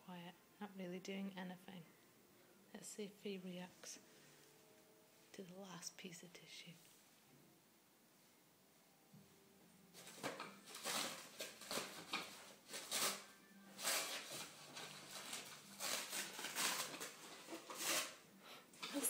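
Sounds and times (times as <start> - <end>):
paper towel crinkling: 9.9 - 18.2.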